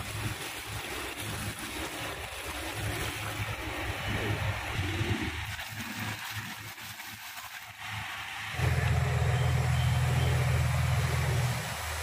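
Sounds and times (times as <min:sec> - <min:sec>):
water splashing into a pot: 0:00.0 - 0:12.0
low engine drone: 0:08.4 - 0:12.0.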